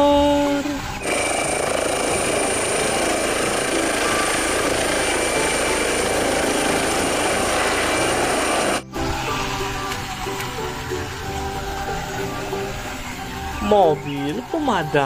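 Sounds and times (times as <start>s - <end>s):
high turbine whine: 0.0s - 15.0s
helicopter rotor: 1.0s - 8.9s.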